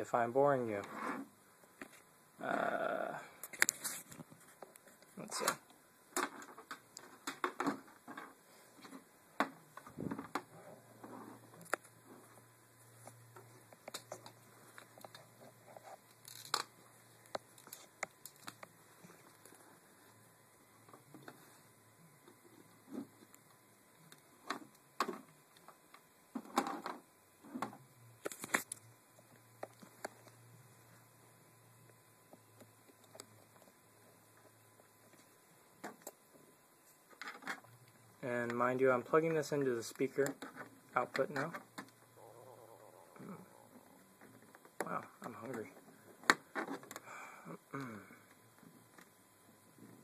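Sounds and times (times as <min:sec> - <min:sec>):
faint low hum: 0:00.0 - 0:50.0
cables and plugs clicking: 0:16.0 - 0:19.5.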